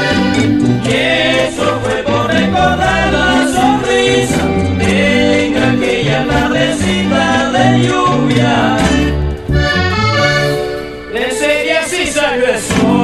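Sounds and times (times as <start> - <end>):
voices singing a melody: 0.0 - 10.4, 11.1 - 13.0
steady bass line: 0.0 - 11.3.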